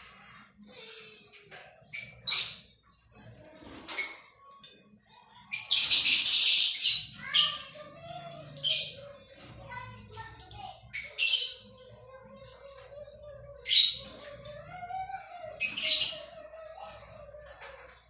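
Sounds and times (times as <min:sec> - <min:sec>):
parakeets shrill calls: 0:05.5 - 0:07.9, 0:10.9 - 0:11.8, 0:13.6 - 0:17.6.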